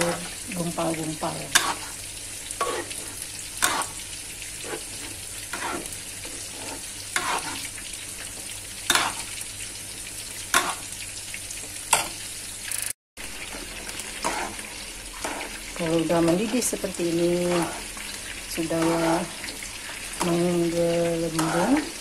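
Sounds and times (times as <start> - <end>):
metal ladle scraping a wok: 1.5 - 2.0, 2.6 - 4.0, 4.6 - 7.7, 8.9 - 9.3, 14.2 - 14.6.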